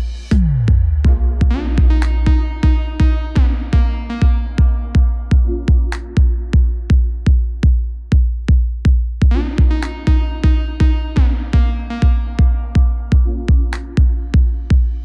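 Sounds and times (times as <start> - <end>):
kick drum beat: 0.0 - 15.0
sustained synth chords: 0.9 - 8.1, 9.3 - 15.0
rising synth sweep: 1.0 - 6.2.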